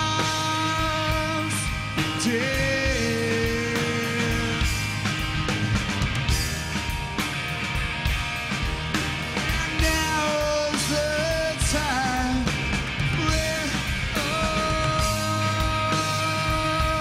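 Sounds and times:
man singing: 0.0 - 4.9, 9.5 - 17.0
rock band playing: 0.0 - 17.0.

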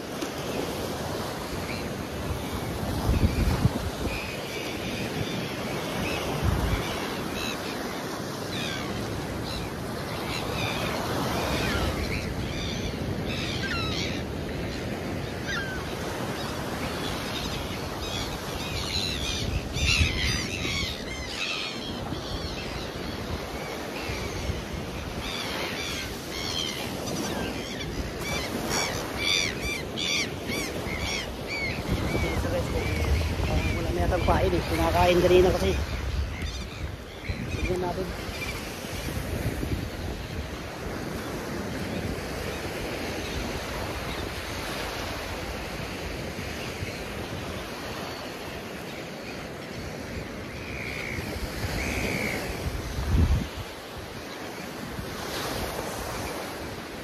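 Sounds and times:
wind on microphone: 0.0 - 7.5, 26.8 - 45.5, 51.2 - 54.1
surf washing onto beach: 0.0 - 20.8
birds chirping: 1.2 - 45.8.

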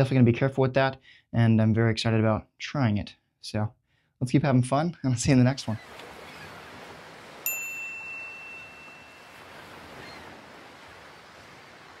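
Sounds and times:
ocean surf hiss: 5.8 - 12.0
bright chime: 7.4 - 9.4.

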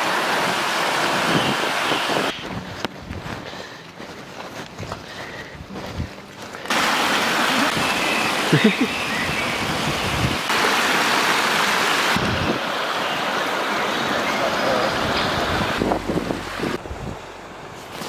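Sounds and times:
stream rushing over rocks: 0.0 - 2.6, 6.6 - 18.0.

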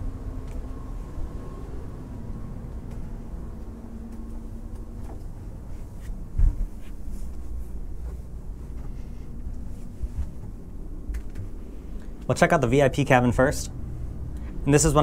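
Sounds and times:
low steady rumble: 0.0 - 15.0
footsteps on stairs: 2.8 - 11.5.

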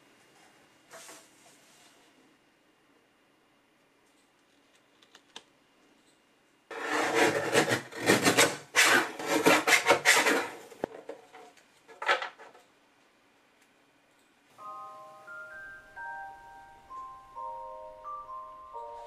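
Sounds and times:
paper trimmer blade scraping: 6.7 - 10.6.

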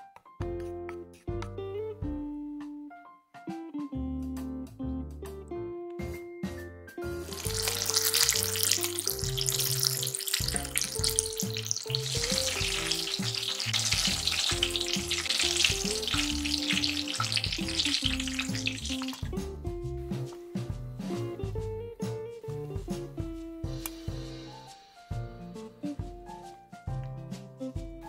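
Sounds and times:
light guitar music: 0.0 - 28.0
fish deep-frying in oil: 7.3 - 19.6.

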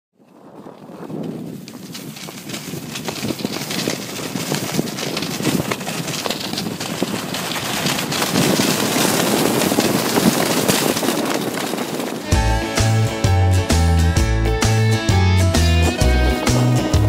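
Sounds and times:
snow crunches: 0.2 - 13.8
skis hissing through powder snow: 0.8 - 12.9.

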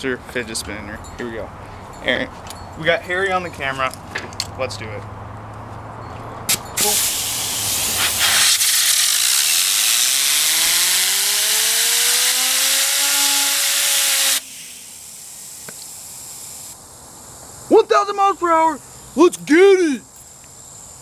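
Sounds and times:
compressed air hissing: 6.8 - 16.8
fidget spinner whine: 7.2 - 16.8.

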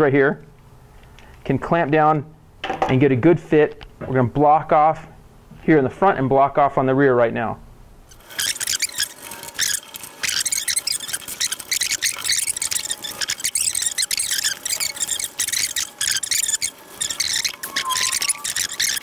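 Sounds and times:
hissing metal scraping: 8.1 - 19.0
faint thin whistle: 17.0 - 19.0.

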